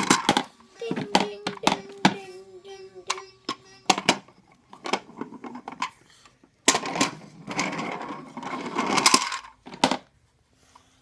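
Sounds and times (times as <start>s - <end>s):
toy car rattling on plastic track: 0.0s - 4.2s, 6.7s - 10.1s.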